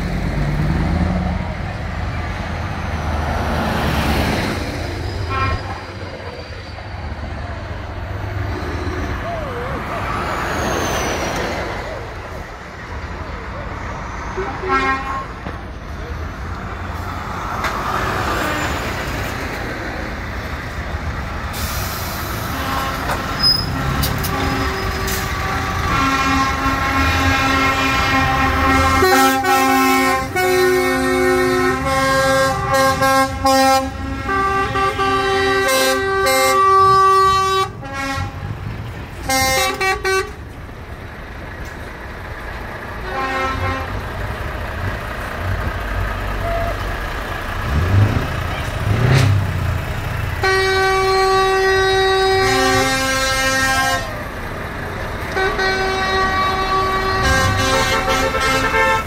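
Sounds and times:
truck engines rumbling: 0:00.0 - 0:59.0
truck air horn blasts: 0:05.2 - 0:05.9, 0:14.3 - 0:15.5, 0:21.6 - 0:38.6, 0:39.2 - 0:40.4, 0:43.0 - 0:44.0, 0:50.4 - 0:54.2, 0:55.3 - 0:59.0.

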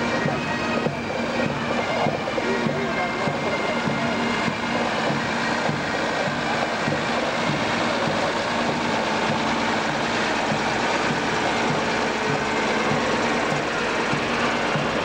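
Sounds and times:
second truck following: 0:00.0 - 0:15.0
diesel truck engine driving past: 0:04.3 - 0:15.0.

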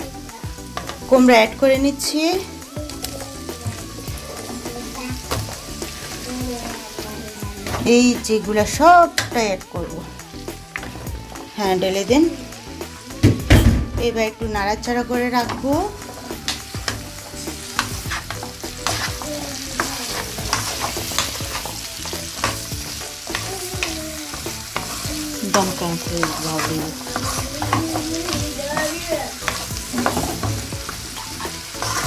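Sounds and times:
frying sizzle: 0:00.0 - 0:32.0
spatula scraping and knocking pan: 0:15.4 - 0:32.0.

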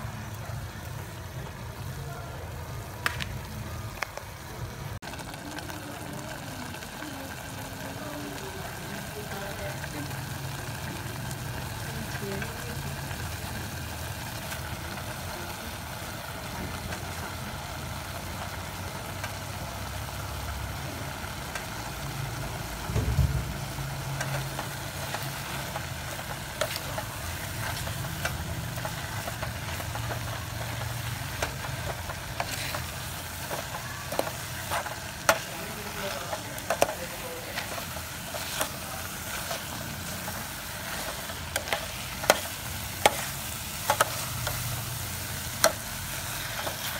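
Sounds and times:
vegetables sizzling in oil: 0:00.0 - 0:46.9
thump: 0:22.9 - 0:23.6.

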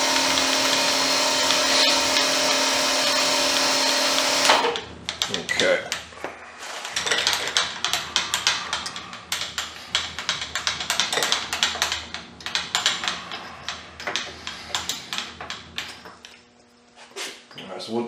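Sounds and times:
metal parts clicking and tapping: 0:04.5 - 0:06.1, 0:06.8 - 0:16.3.

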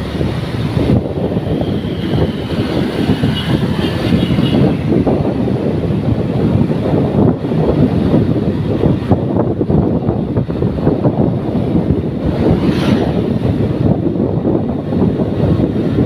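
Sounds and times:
motorcycle engine: 0:00.0 - 0:08.6
road noise: 0:00.0 - 0:16.0
wind buffeting microphone: 0:00.0 - 0:16.0.

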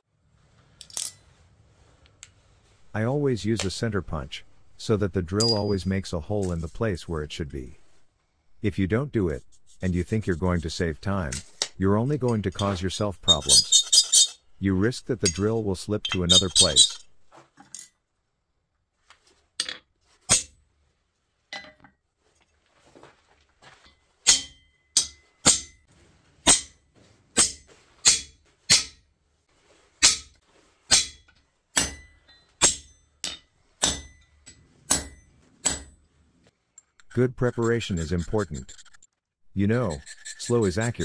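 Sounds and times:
hammer striking steel punch: 0:30.9 - 0:34.3, 0:34.9 - 0:36.0.

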